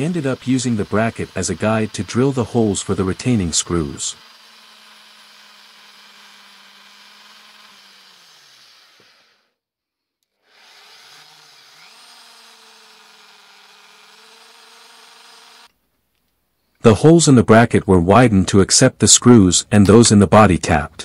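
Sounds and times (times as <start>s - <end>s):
drill press motor humming: 0.0s - 9.6s, 10.2s - 15.8s.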